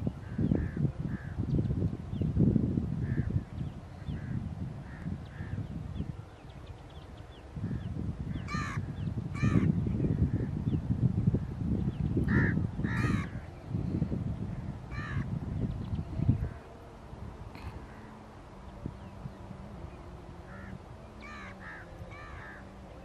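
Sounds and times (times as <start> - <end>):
low rumbling noise: 0.0 - 23.0
crows cawing: 8.5 - 8.8, 12.3 - 13.4, 14.9 - 15.3, 20.5 - 22.7.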